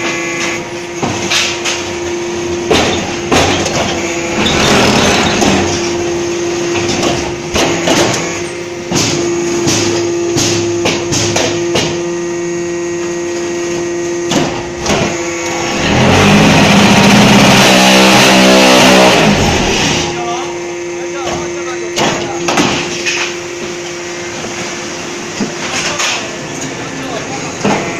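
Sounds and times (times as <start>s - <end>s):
loud rough machine noise: 0.0s - 27.9s
machine humming: 0.0s - 27.9s
metallic knocks and clanks: 2.7s - 5.9s.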